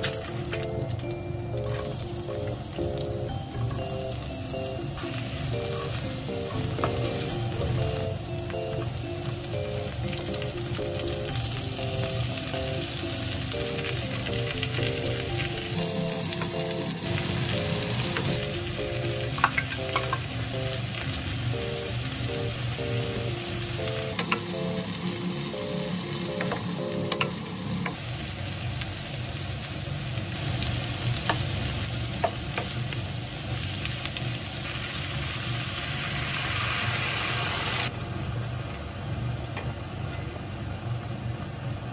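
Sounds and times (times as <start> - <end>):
soft background music: 0.0 - 28.0
food sizzling in frying pan: 0.0 - 41.9.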